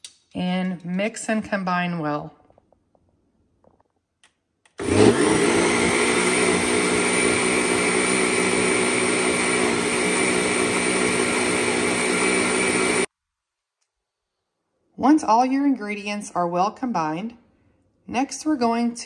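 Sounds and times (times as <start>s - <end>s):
blender running: 4.8s - 13.1s.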